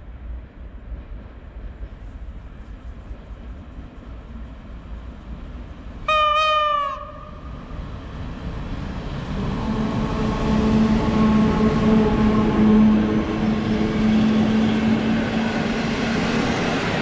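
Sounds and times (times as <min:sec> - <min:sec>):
locomotive hum: 0:00.0 - 0:17.0
train rumbling through station: 0:00.0 - 0:17.0
locomotive horn blast: 0:06.1 - 0:07.4.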